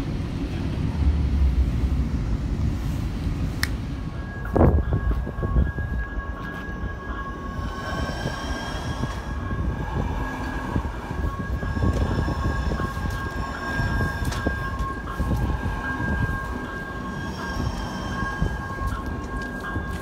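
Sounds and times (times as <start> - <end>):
high whine: 0.0 - 20.0
train rumble: 0.0 - 20.0.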